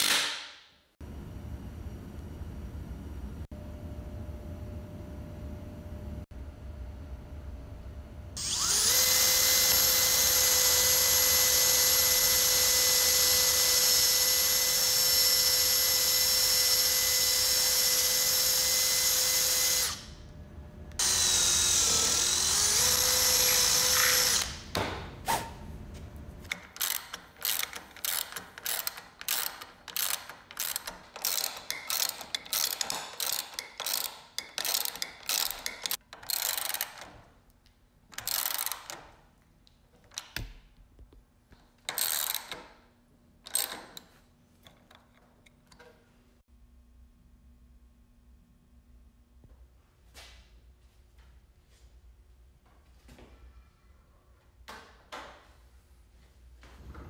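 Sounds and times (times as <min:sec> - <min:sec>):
drill boring into wood: 0:08.4 - 0:20.1, 0:21.0 - 0:24.6
ratchet wrench clicking: 0:26.5 - 0:37.0, 0:38.2 - 0:39.0, 0:41.9 - 0:42.7, 0:43.5 - 0:44.0.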